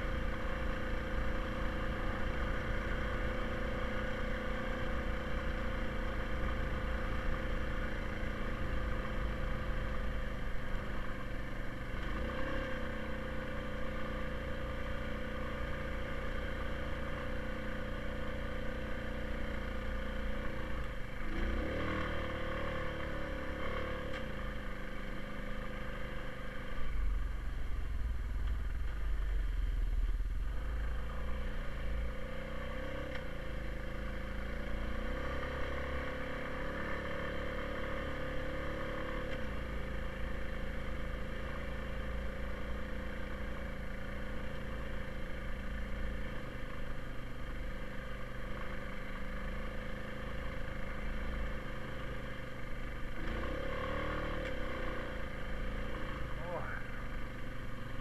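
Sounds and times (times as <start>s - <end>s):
quad bike engine running: 0.0s - 58.0s
heavy low rumble: 26.8s - 32.1s.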